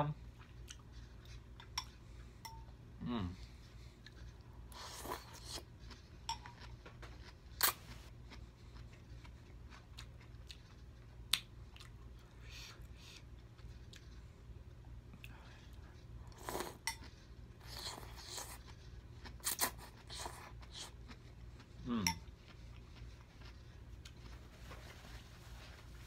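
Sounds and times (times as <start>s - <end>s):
low steady hum: 0.0s - 26.0s
man humming: 21.8s - 22.1s.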